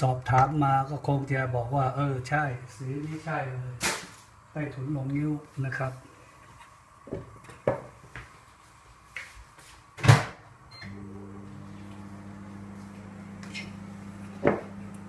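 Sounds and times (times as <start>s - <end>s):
appliance electrical hum: 0.0s - 15.0s
kitchen knocks and clatter: 7.1s - 8.2s.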